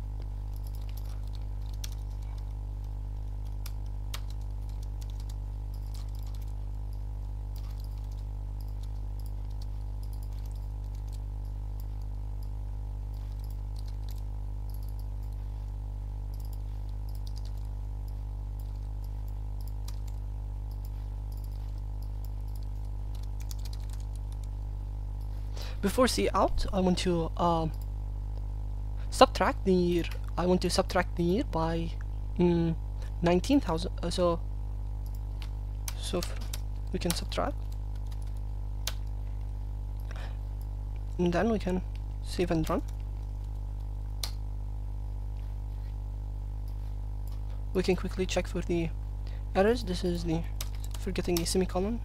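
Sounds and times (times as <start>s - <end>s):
steady low hum: 0.0s - 52.0s
keyboard typing: 0.4s - 15.4s, 16.3s - 24.6s, 35.0s - 39.1s, 50.6s - 51.7s.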